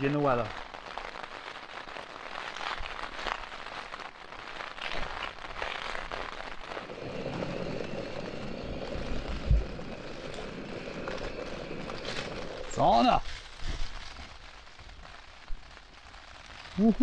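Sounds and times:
rain pattering on a tent: 0:00.0 - 0:17.0
steady rushing noise: 0:06.6 - 0:14.3.

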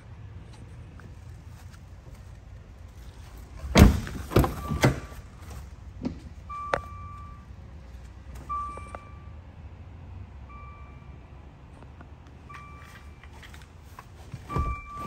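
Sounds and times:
car door shutting: 0:03.6 - 0:05.2, 0:14.3 - 0:15.0
car warning beep: 0:04.3 - 0:05.3, 0:06.4 - 0:07.6, 0:08.4 - 0:09.4, 0:10.5 - 0:11.3, 0:12.4 - 0:13.4, 0:14.4 - 0:15.0.

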